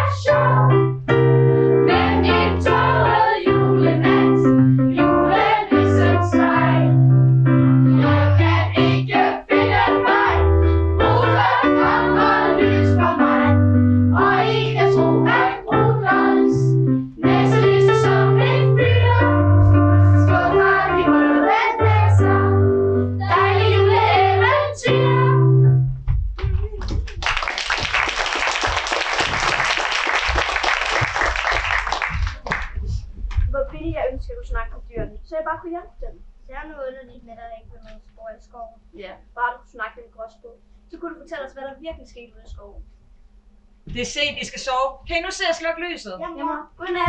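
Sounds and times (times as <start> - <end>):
piano accompaniment: 0.0 - 26.5
audience applause: 27.0 - 32.8.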